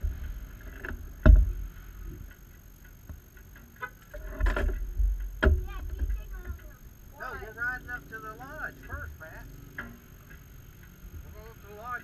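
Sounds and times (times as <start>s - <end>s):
engine idling low rumble: 0.0s - 12.0s
sharp knocks in cab: 1.2s - 1.6s, 4.4s - 6.6s.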